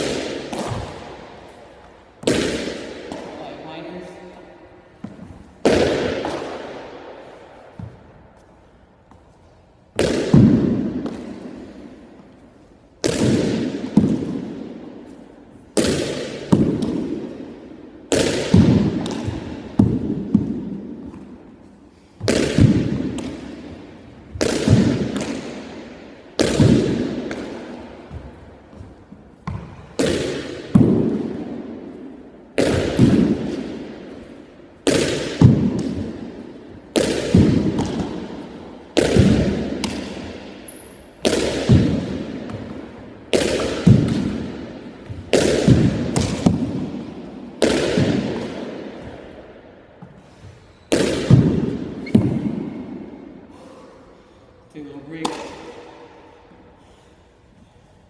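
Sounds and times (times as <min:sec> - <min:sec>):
ball banging against gym wall: 0:05.0 - 0:06.8, 0:07.7 - 0:08.2, 0:18.1 - 0:21.4, 0:22.2 - 0:31.7, 0:32.6 - 0:49.4, 0:50.0 - 0:53.0.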